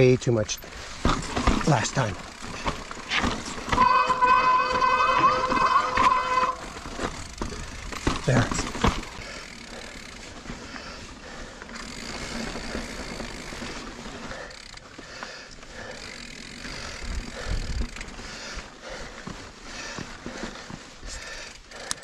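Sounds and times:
bike tyres crunching over dirt: 0.0 - 21.9
bike rattling: 0.0 - 22.0
heavy bike thumps: 0.8 - 9.5.

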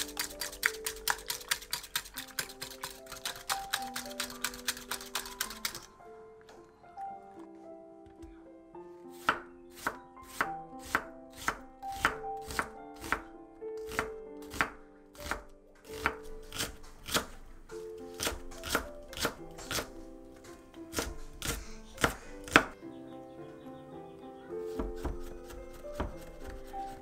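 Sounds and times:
knife chopping on wooden board: 9.2 - 13.2, 13.9 - 17.4, 18.1 - 19.9, 20.9 - 22.8, 24.7 - 26.7.

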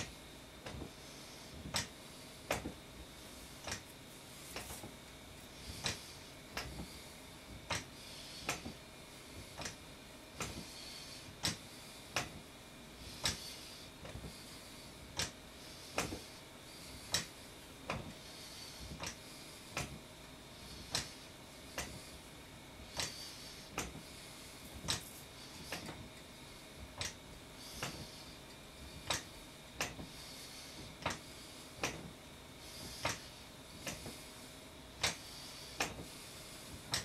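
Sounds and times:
exercise stepper clicking and knocking: 1.6 - 2.8, 5.7 - 7.0, 7.6 - 8.8, 10.4 - 12.4, 15.2 - 16.3, 16.9 - 20.0, 20.8 - 22.1, 22.9 - 24.1, 24.7 - 26.1, 27.8 - 28.3, 29.0 - 32.1, 32.7 - 34.2.

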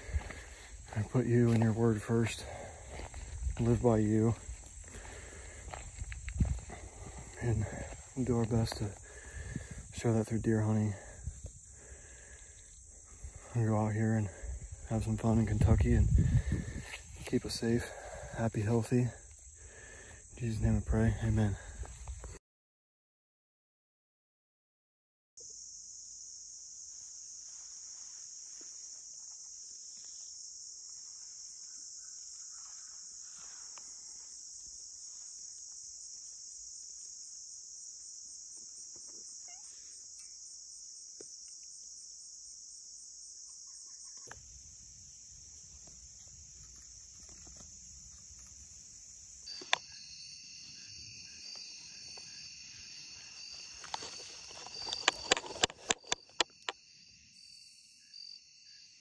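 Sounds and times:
insect buzzing trill: 25.4 - 59.0.

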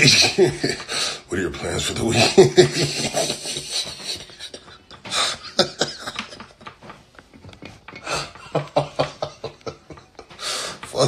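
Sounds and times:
man laughing hard: 0.0 - 0.9, 2.1 - 6.8, 8.0 - 10.9.

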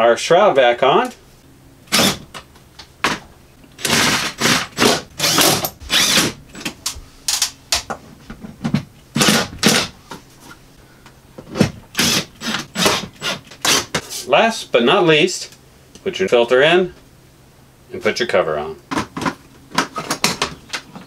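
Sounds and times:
cordless drill running: 3.8 - 6.7, 12.0 - 13.8.

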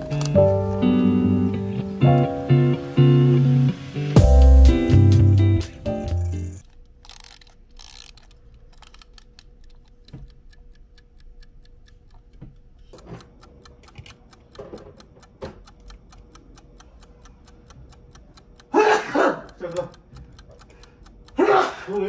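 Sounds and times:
light even ticks: 7.0 - 18.8, 19.4 - 22.0.

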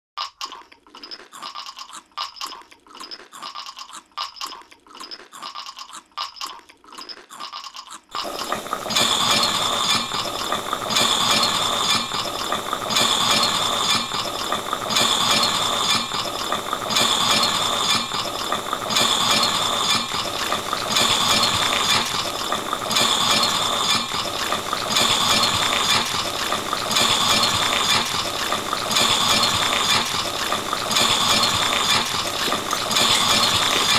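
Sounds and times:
rhythmic rattling: 8.2 - 33.9.

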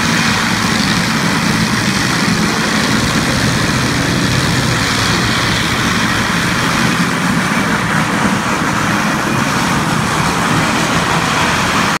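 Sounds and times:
grinding head scraping floor: 0.0 - 9.0.

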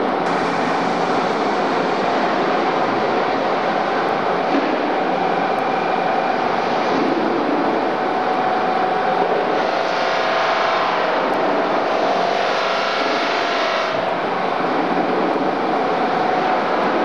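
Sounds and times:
polishing machine whirring: 0.3 - 5.5.

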